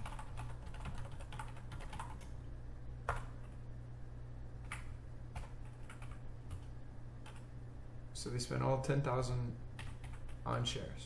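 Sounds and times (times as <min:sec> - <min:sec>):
keyboard typing: 0:00.0 - 0:02.3, 0:03.0 - 0:03.6, 0:04.6 - 0:07.5, 0:09.8 - 0:10.6
low steady hum: 0:00.0 - 0:11.0.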